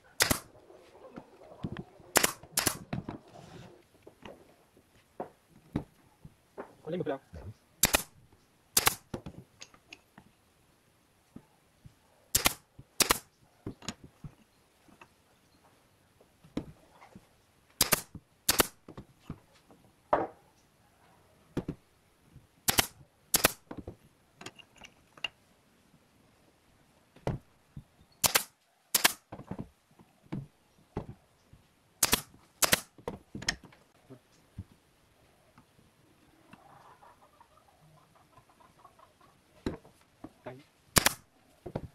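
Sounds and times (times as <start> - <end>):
nail gun firing: 0.2 - 0.5, 2.2 - 2.9, 7.8 - 8.1, 8.8 - 9.1, 12.3 - 13.3, 17.8 - 18.8, 22.7 - 23.7, 28.2 - 29.3, 32.0 - 32.9, 41.0 - 41.2.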